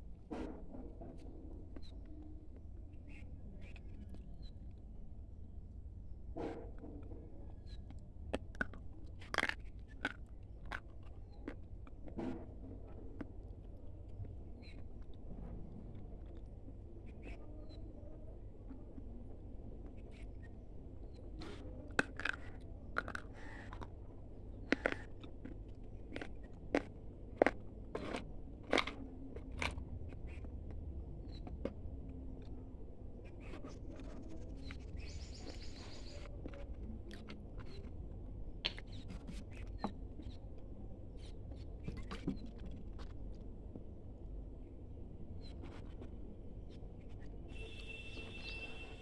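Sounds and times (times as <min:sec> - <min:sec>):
crunching bites of dry clay: 0:08.3 - 0:12.2, 0:21.9 - 0:23.9, 0:24.6 - 0:30.5.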